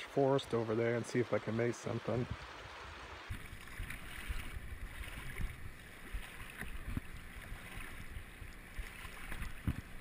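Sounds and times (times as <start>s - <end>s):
river current flowing: 0.0s - 10.0s
water sloshing around legs: 3.3s - 10.0s.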